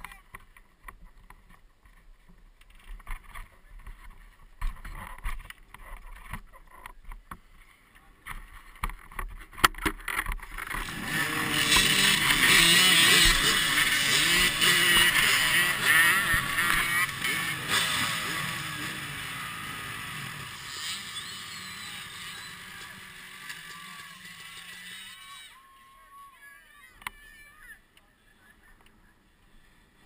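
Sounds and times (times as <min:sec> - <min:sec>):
dirt bike engines revving: 0:10.1 - 0:25.6.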